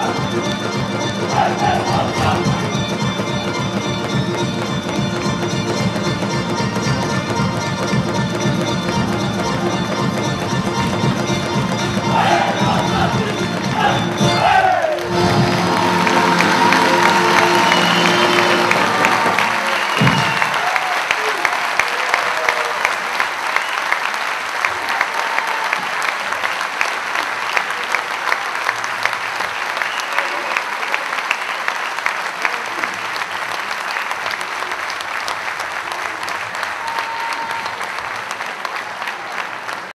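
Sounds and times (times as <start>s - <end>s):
audience applauding: 9.6s - 39.9s.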